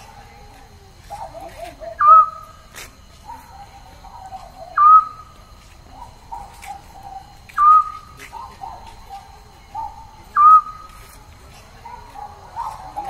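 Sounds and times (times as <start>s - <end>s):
high-pitched animal call: 4.3s - 5.3s.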